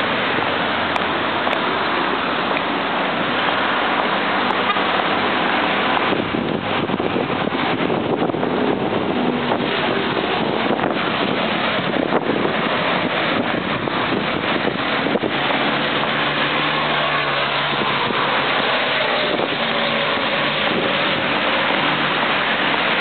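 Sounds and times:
expressway traffic rushing: 0.0s - 23.0s
passing vehicle engine hum: 0.0s - 23.0s
wind buffeting microphone: 3.1s - 23.0s.

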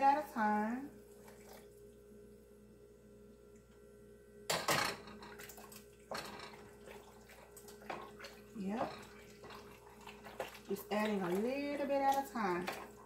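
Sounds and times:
faint steady hum: 0.0s - 13.0s
liquid pouring into pot: 5.1s - 13.0s
liquid splash: 5.3s - 13.0s.

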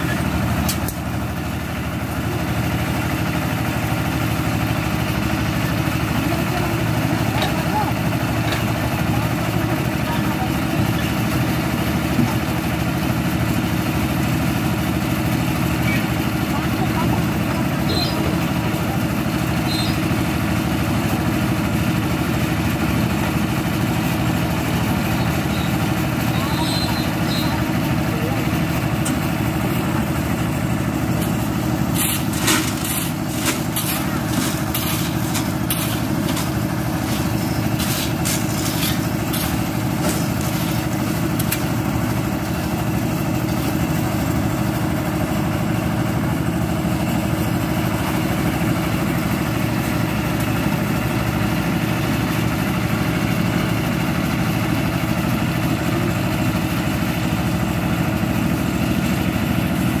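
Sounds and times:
concrete mixer engine running: 0.0s - 60.0s
shovels clanking on gravel: 31.9s - 41.6s.

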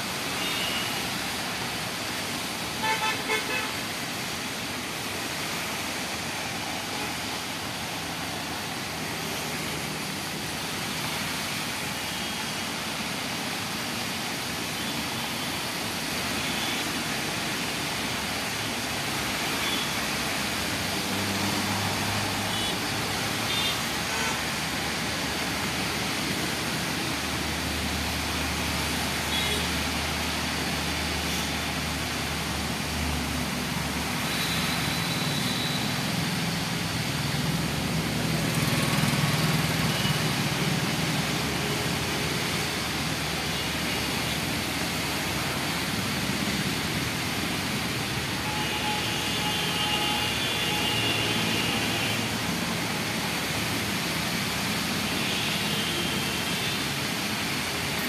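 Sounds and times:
tyres hissing on wet road: 0.0s - 58.0s
passing car engines: 35.9s - 43.3s.

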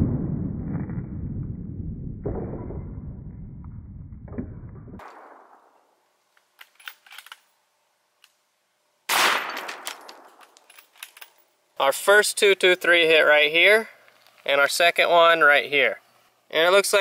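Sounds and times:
muffled low boom: 0.0s - 5.0s
rifle shot cracking: 5.0s - 5.7s, 9.1s - 10.5s.

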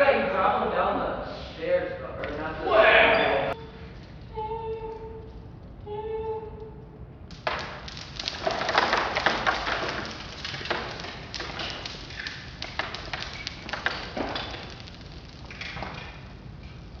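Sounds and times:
marbles clattering on floor: 7.3s - 17.0s.

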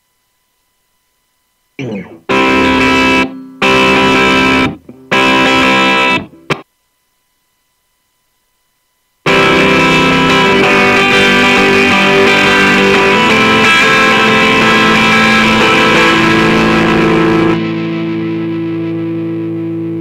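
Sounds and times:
amped electric guitar: 1.8s - 6.6s, 9.2s - 20.0s.

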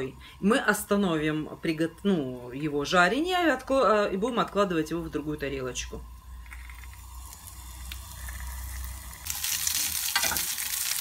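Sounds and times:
pork fat sizzling in a pan: 6.0s - 11.0s.

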